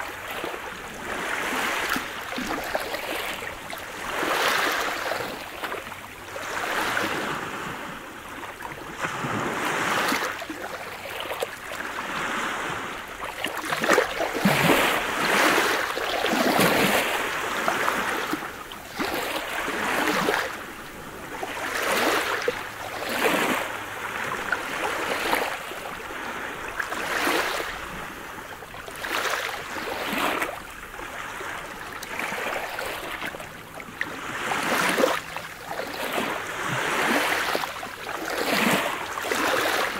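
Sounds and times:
waves washing onto pebble beach: 11.8s - 30.5s.

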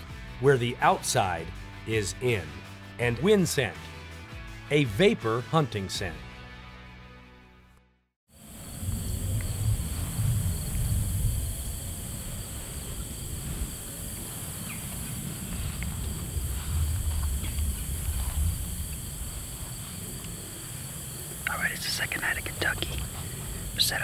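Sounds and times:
insects chorus: 8.3s - 24.0s
low uneven rumble: 8.4s - 24.0s.

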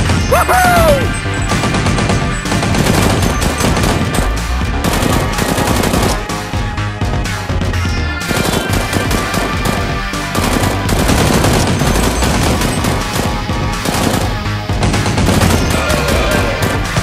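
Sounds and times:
background music: 0.0s - 17.0s
machine-gun fire: 1.5s - 6.3s, 8.3s - 17.0s.

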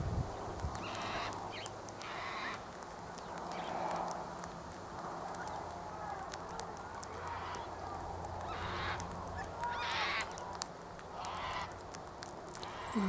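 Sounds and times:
faint ticks: 0.3s - 13.0s
parrots harsh calls: 0.8s - 1.3s, 2.0s - 2.6s, 7.2s - 7.7s, 8.4s - 9.1s, 9.7s - 10.3s, 11.1s - 11.8s.

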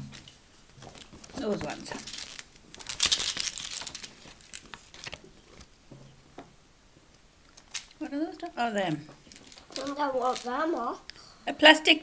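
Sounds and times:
snack packaging crinkling: 0.1s - 5.8s, 7.4s - 8.0s, 9.2s - 10.8s.

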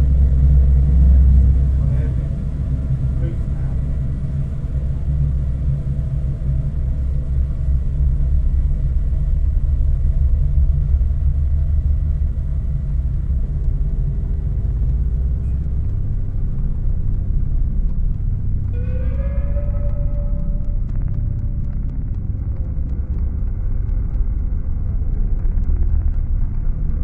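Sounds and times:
low rumbling drone: 0.0s - 27.0s
faint held tones: 18.7s - 22.3s.

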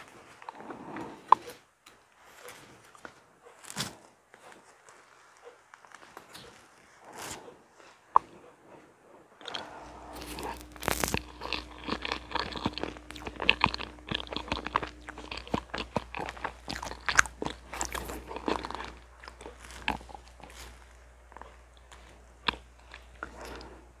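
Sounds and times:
chewing with wet mouth clicks: 9.4s - 23.8s.

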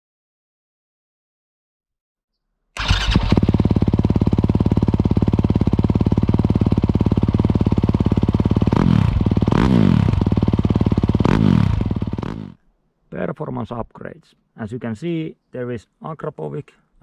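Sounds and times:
motorcycle engine idling: 2.8s - 12.6s
throttle blips revving engine: 8.6s - 12.6s.

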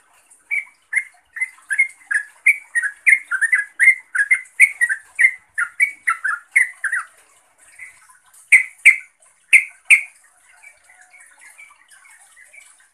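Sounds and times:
bird chirping: 0.5s - 12.8s
loud sharp bird notes: 8.5s - 10.1s.

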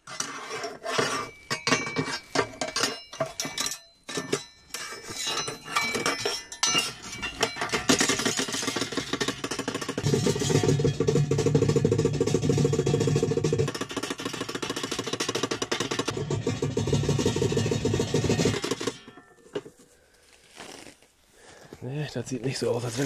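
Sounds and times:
metal gate clattering: 1.3s - 19.6s.

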